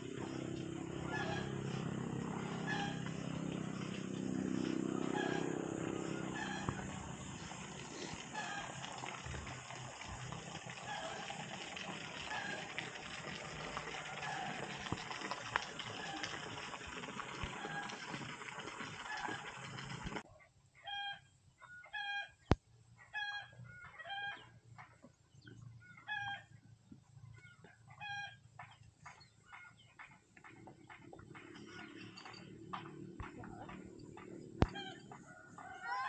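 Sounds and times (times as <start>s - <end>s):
chickens clucking: 0.1s - 8.8s.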